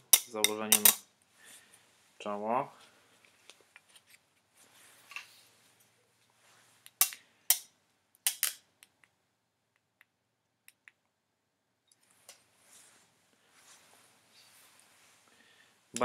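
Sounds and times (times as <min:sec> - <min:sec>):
strap rustling: 0:02.8 - 0:07.3, 0:12.0 - 0:15.3.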